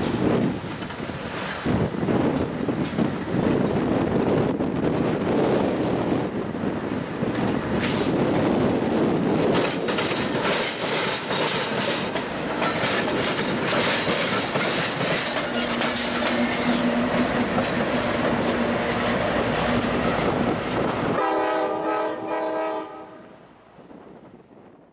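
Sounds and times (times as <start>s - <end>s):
diesel locomotive engine: 0.0s - 24.8s
train wheels clacking over rail joints: 7.3s - 8.2s, 9.4s - 21.2s
train air horn chord: 21.2s - 23.3s.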